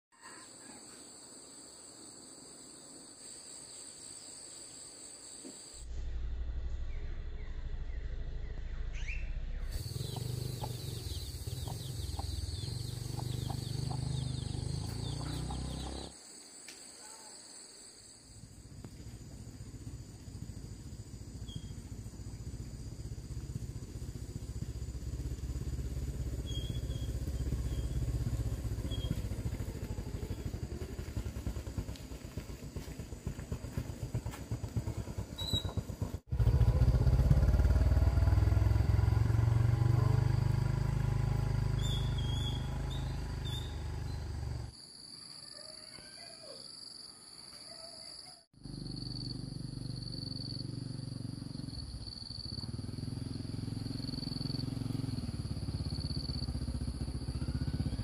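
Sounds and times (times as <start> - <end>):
loud low rumble: 5.8 - 16.1.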